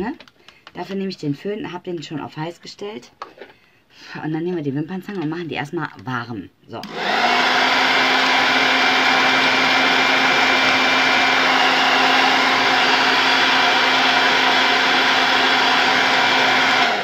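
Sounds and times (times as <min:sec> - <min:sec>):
hair dryer running: 0:06.8 - 0:17.0.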